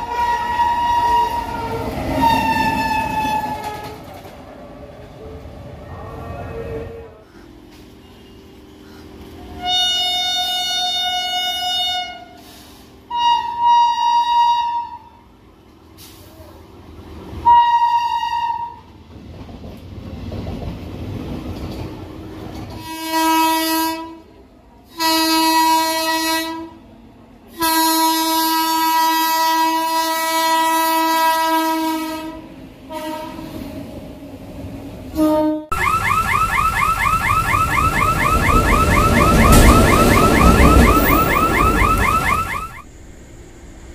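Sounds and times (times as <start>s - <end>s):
locomotive horn blasts: 0.0s - 4.0s, 9.5s - 12.4s, 13.1s - 15.2s, 17.4s - 18.8s, 22.8s - 24.3s, 24.9s - 26.8s, 27.5s - 33.5s, 35.2s - 35.8s, 37.2s - 42.9s
locomotive rumbling past: 0.0s - 43.9s.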